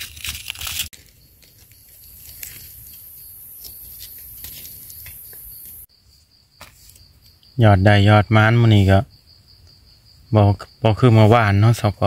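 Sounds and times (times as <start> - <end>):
dry leaves rustling and crunching: 0.0 - 5.8
faint crackles of leaves: 0.0 - 7.6.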